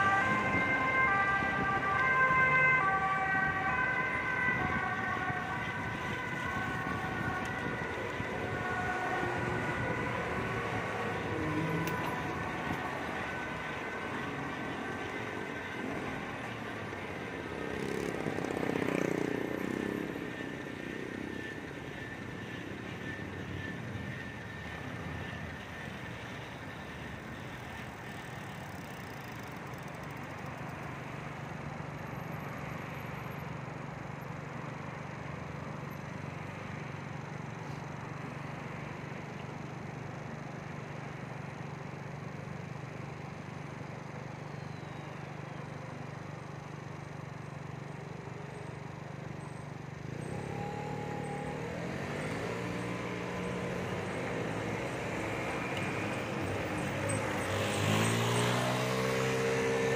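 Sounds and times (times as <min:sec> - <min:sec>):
vehicle passing: 0:00.0 - 0:20.7, 0:50.2 - 0:59.9
city traffic: 0:00.0 - 0:59.9.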